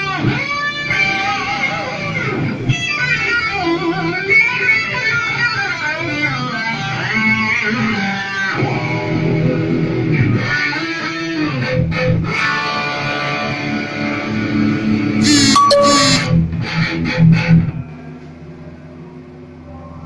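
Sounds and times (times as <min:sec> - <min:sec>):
electric guitar lead with bends: 0:15.2 - 0:16.4.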